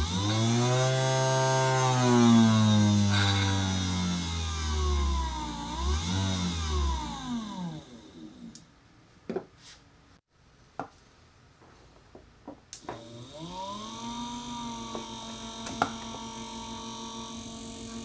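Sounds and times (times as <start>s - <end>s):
drill motor spinning down: 0.0s - 8.5s, 12.8s - 18.0s.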